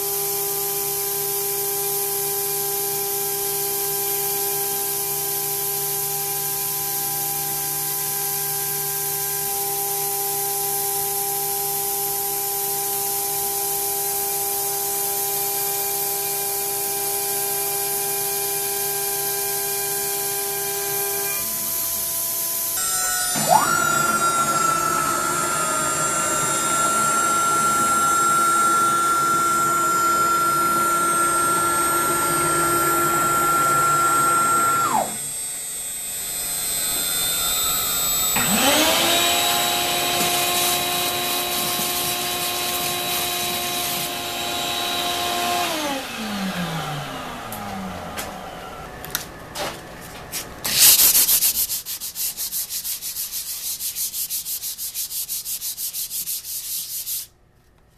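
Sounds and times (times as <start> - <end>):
router spindle whining: 13.2 - 49.4
vacuum motor running: 20.9 - 50.9
sanding block rubbing on wood: 50.7 - 57.3.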